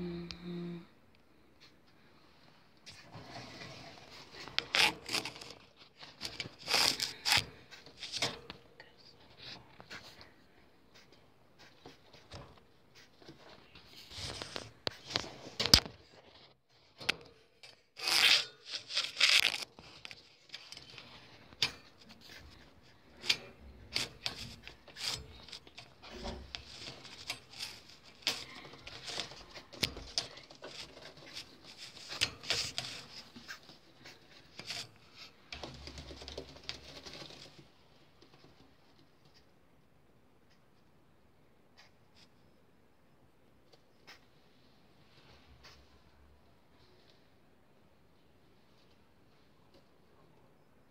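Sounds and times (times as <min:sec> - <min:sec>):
rustling and scraping: 0:01.6 - 0:39.5.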